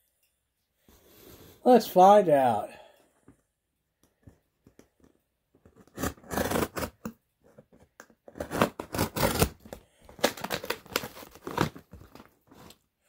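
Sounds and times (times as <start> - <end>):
packing tape being slit open: 5.8 - 7.2, 8.2 - 12.8.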